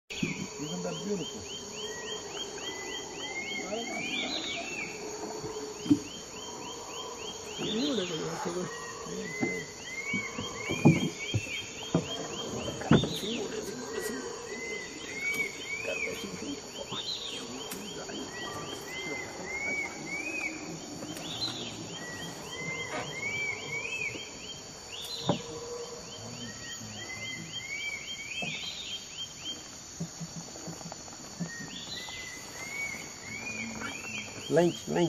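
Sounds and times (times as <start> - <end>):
distant howler monkeys roaring: 0.1 - 28.9, 29.9 - 35.0
bird singing: 0.1 - 35.0.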